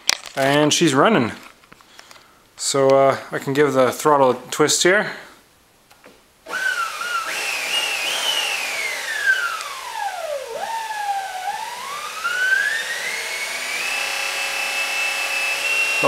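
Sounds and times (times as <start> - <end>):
electric motor whining: 6.5 - 16.0.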